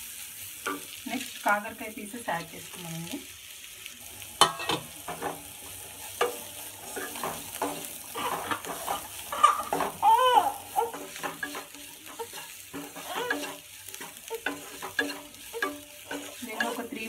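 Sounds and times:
oil sizzling: 0.0 - 17.0
spatula scraping a pan: 4.4 - 17.0.

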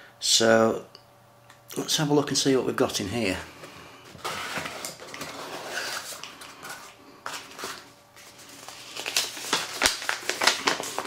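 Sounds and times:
cardboard and paper rustling: 4.0 - 11.0
paper crackling: 4.2 - 11.0.

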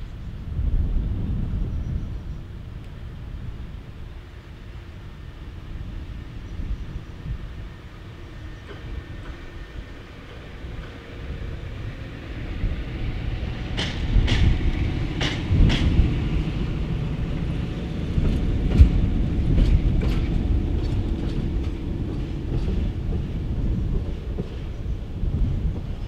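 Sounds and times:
diesel locomotive engine: 2.2 - 26.0
wheels clicking over rail joints: 13.0 - 26.0.

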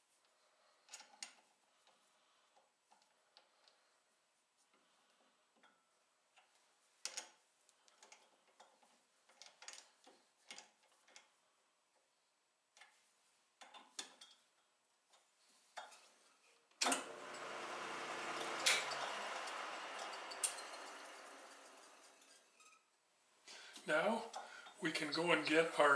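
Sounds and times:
lathe motor humming: 16.9 - 22.5.

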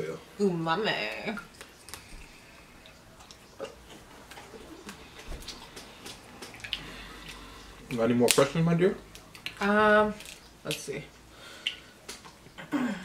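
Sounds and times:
chewing: 1.4 - 8.0
lip smacks: 1.4 - 8.4, 9.1 - 9.6, 11.6 - 12.6.

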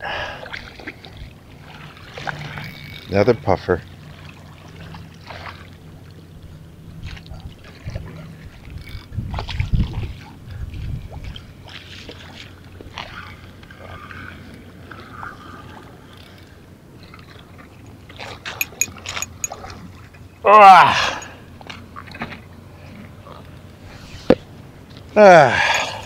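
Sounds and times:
water sloshing against pier: 0.0 - 26.0
small splashes and crackles: 0.4 - 3.3, 4.0 - 18.5
wind gusting on microphone: 9.1 - 11.4.

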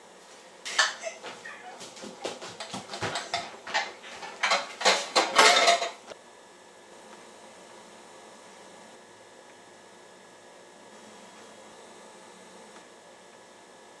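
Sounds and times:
bowl and cutlery clattering: 2.4 - 6.0.

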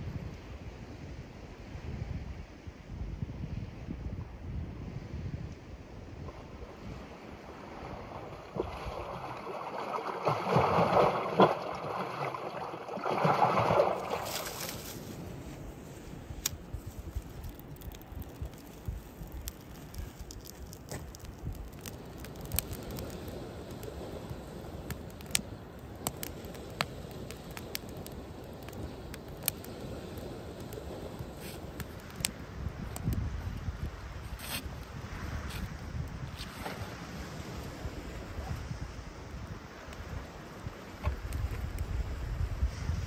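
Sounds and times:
water lapping against shore: 6.2 - 43.0
campfire crackling and popping: 12.6 - 36.4, 37.3 - 42.6.

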